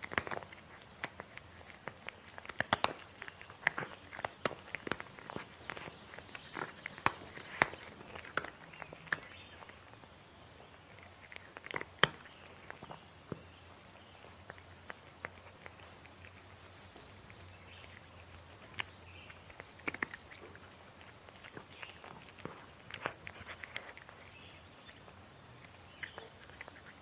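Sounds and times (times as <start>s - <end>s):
cat chewing dry kibble: 0.0s - 27.0s.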